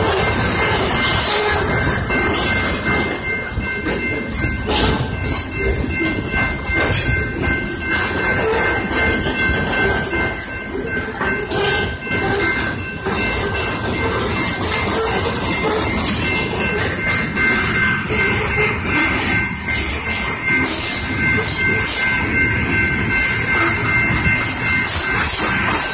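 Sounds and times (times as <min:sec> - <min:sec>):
steady high ringing tones: 0:00.0 - 0:25.9
train wheels rumbling: 0:00.0 - 0:25.9
wheels knocking on rail joints: 0:00.0 - 0:25.9.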